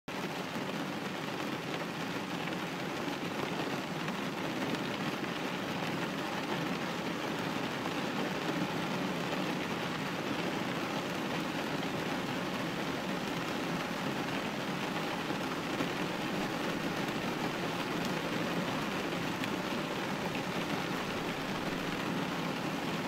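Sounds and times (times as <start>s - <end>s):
rain on a window: 0.1s - 23.0s.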